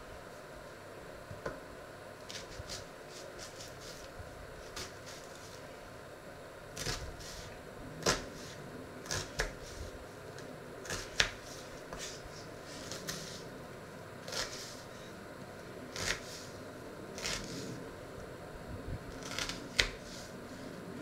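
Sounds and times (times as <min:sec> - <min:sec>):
knife cutting onion on board: 0:02.3 - 0:05.6, 0:06.8 - 0:09.9, 0:10.8 - 0:13.5, 0:14.2 - 0:14.8, 0:15.9 - 0:16.5, 0:17.2 - 0:17.8, 0:19.2 - 0:20.3.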